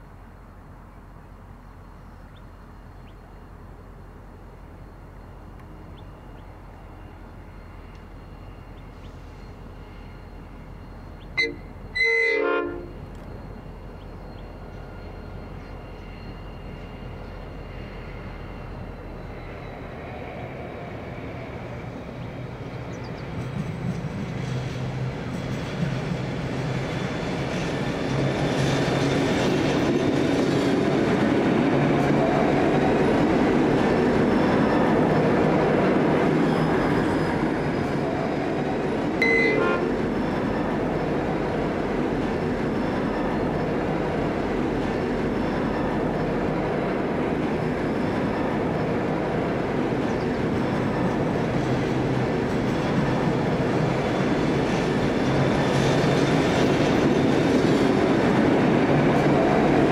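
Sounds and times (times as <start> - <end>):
diesel locomotives passing: 0.0 - 59.9
brief ringing tone: 39.2 - 39.8.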